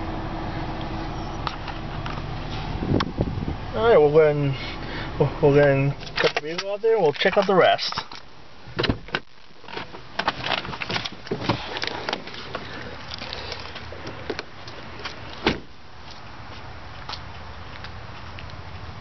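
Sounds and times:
car door opening: 6.0 - 12.7, 14.0 - 15.7
car door shutting thud: 8.7 - 9.2, 15.4 - 15.7.

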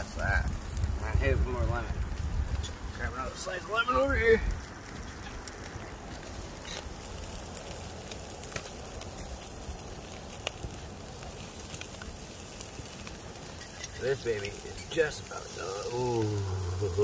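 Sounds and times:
coals popping and crackling: 0.0 - 17.0
fish sizzling on a grill: 0.0 - 17.0
low rumble: 16.0 - 17.0.

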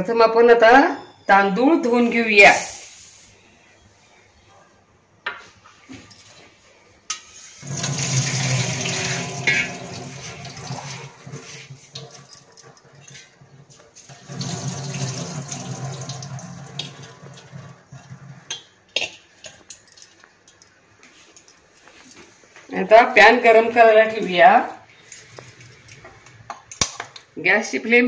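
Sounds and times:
water pouring into sink: 7.6 - 12.1, 14.1 - 18.5.

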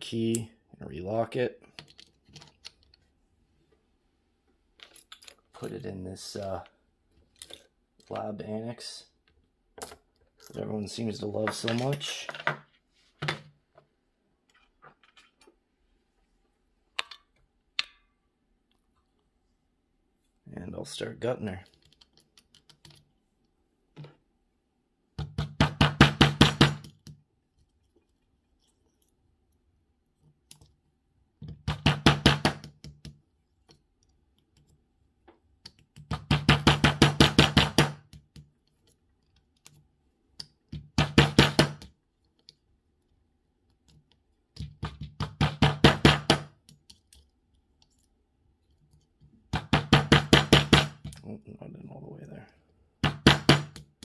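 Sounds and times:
hammer tapping a pin punch: 25.2 - 26.9, 31.5 - 33.1, 36.0 - 38.4, 40.8 - 41.9, 44.6 - 46.5, 49.5 - 51.2, 53.0 - 54.0.

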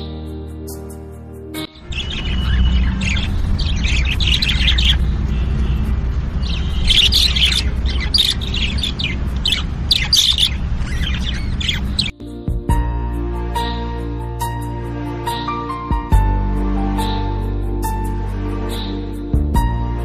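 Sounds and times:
birds chirping and trilling: 0.0 - 20.0
steady low rumble: 1.9 - 12.1.

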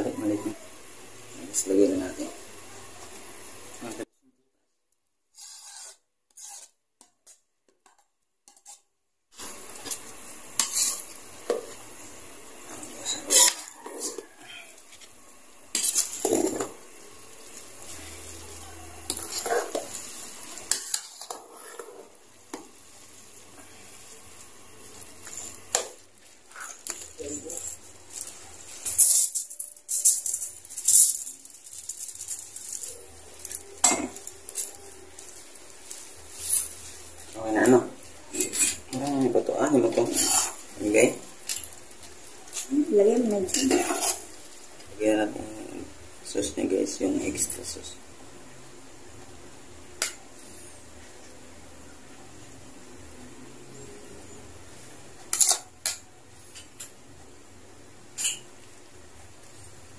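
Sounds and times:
metal spatula scraping a pot: 5.3 - 11.6, 13.0 - 14.6, 15.7 - 16.7, 19.1 - 22.1, 38.3 - 41.7, 43.4 - 44.4
ladle stirring noodles: 5.4 - 44.9
foil crinkling: 26.2 - 37.8.

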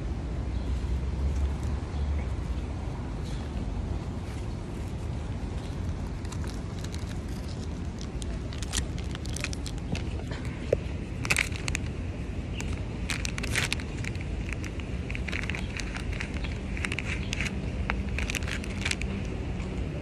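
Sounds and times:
packaging crackling and rustling: 5.6 - 19.2.

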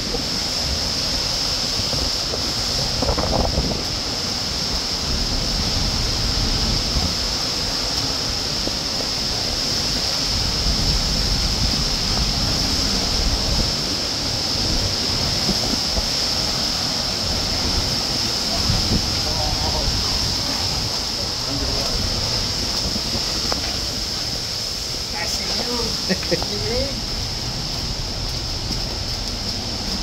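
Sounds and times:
waterfall rushing: 0.0 - 30.0
wind rumble on microphone: 0.0 - 30.0.

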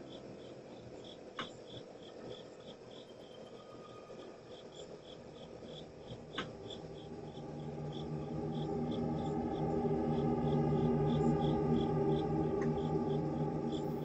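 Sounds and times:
cricket chirping: 0.0 - 14.0
low music: 5.6 - 14.0.

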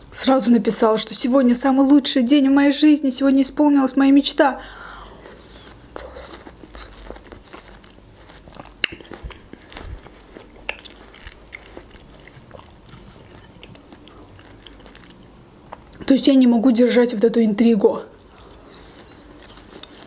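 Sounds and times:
wet chewing crunches: 5.0 - 16.1, 18.1 - 20.0
mouth clicks: 8.6 - 9.5.

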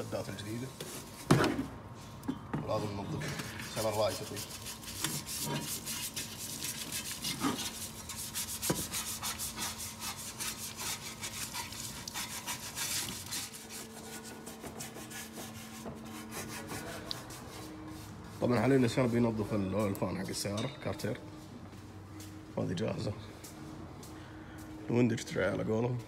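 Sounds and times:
steady low hum: 0.0 - 26.0
brush scrubbing metal: 3.6 - 19.5.

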